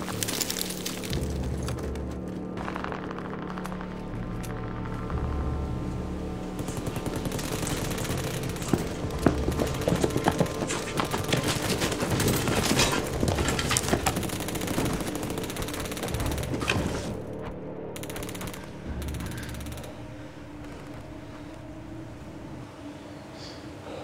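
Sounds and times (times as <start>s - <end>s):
machine-gun fire: 2.6s - 5.1s, 6.6s - 17.2s, 18.0s - 20.0s.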